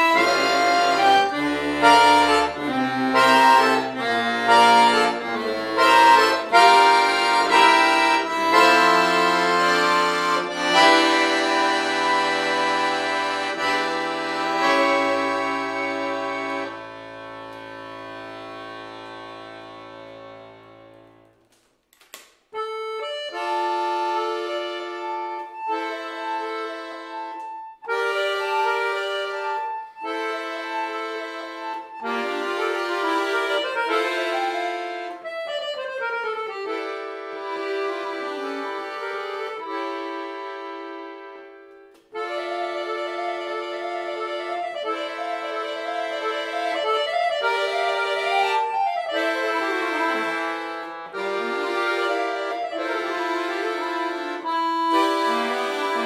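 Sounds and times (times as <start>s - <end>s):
button accordion playing: 0.0s - 21.5s, 22.6s - 56.0s.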